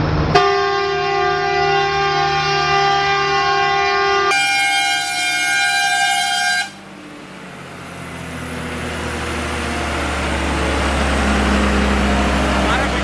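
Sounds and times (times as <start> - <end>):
diesel truck engine: 0.0 - 13.0
truck tyres on road: 0.0 - 13.0
truck air horn: 0.3 - 6.9.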